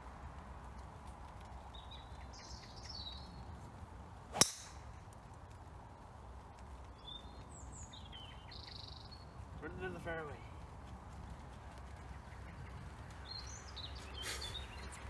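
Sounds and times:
birds chirping faintly: 0:00.6 - 0:04.9, 0:05.5 - 0:15.0
golf club striking ball: 0:04.3 - 0:04.9.

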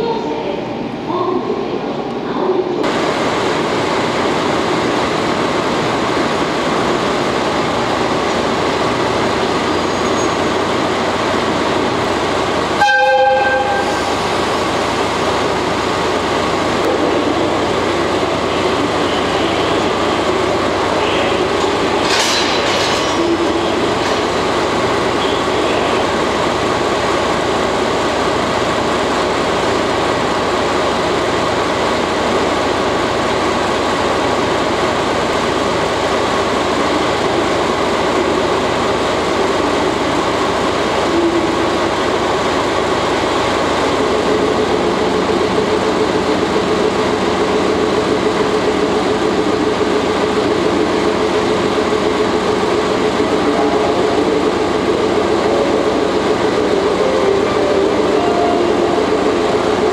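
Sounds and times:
locomotive engine idling: 0:04.9 - 0:59.9
higher steady tone: 0:56.5 - 0:59.9.

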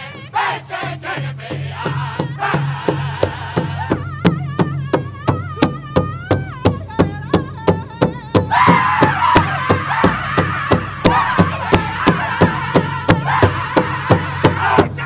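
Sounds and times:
men singing: 0:00.0 - 0:04.4, 0:08.5 - 0:15.0
powwow drum beat: 0:00.0 - 0:15.0.

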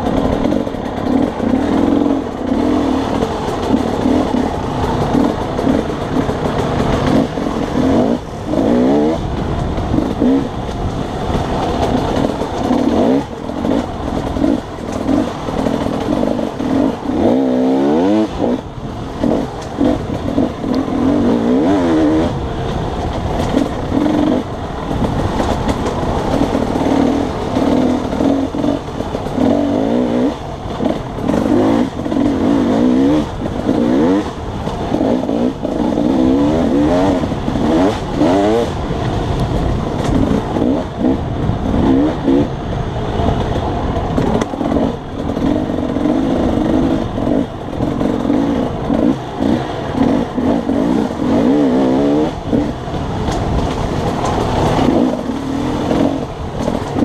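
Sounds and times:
dirt bike engine revving: 0:00.0 - 0:43.0, 0:44.1 - 0:57.0.

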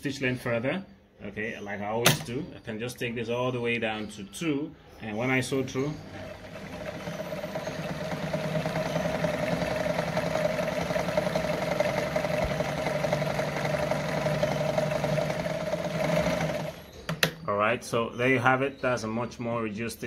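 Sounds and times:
sewing machine running: 0:05.2 - 0:17.3.

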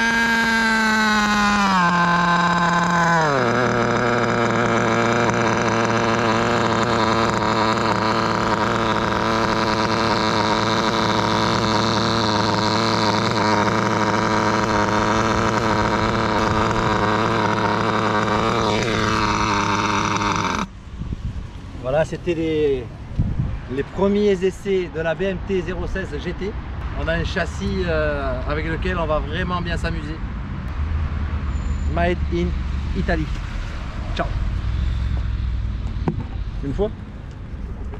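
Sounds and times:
model car engine idling high: 0:00.0 - 0:20.7.

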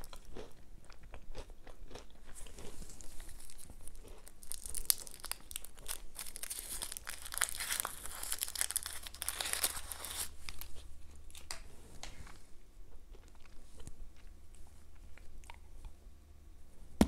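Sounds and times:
foil wrapper crinkling: 0:02.9 - 0:10.7.

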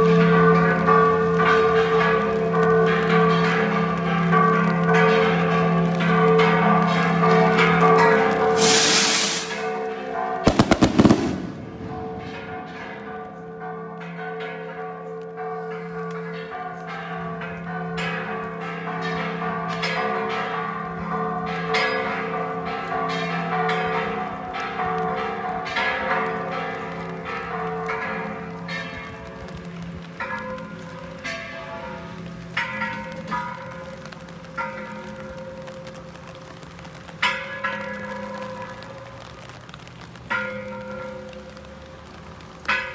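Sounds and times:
church bells ringing: 0:00.0 - 0:42.9
firework bangs: 0:08.6 - 0:09.6, 0:10.4 - 0:13.1
firework rocket hiss: 0:08.6 - 0:09.6.

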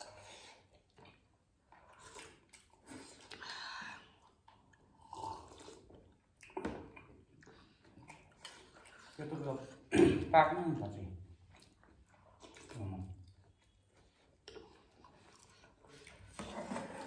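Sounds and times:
chewing: 0:00.0 - 0:09.9, 0:10.8 - 0:17.0
slurping soup from spoons: 0:01.8 - 0:06.6, 0:14.4 - 0:17.0.

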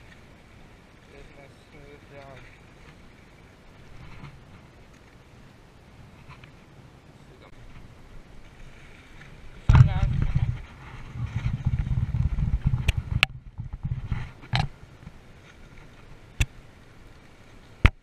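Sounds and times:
low rumbling on microphone: 0:09.4 - 0:15.2.

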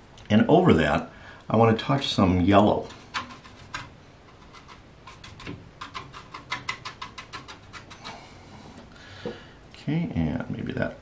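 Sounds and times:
brush tapping and scratching palette: 0:02.3 - 0:08.9.

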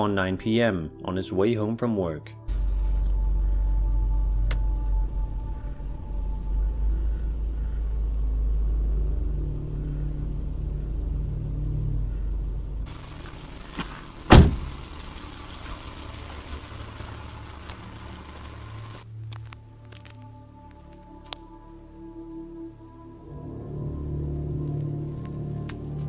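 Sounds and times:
car engine and road rumble: 0:02.5 - 0:20.2
faint outdoor hiss: 0:02.5 - 0:26.0
car door thump: 0:13.8 - 0:14.8.

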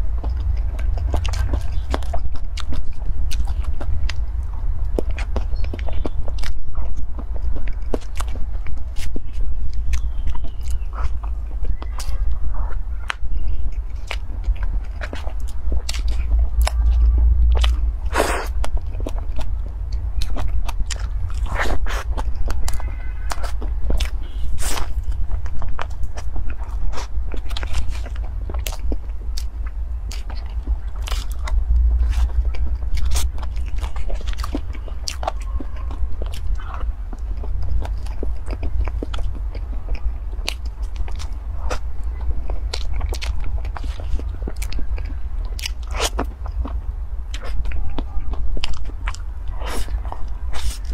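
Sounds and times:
low hum: 0:00.0 - 0:50.9
mouth clicks and smacks: 0:00.0 - 0:50.9
person chewing wetly: 0:00.0 - 0:50.9.

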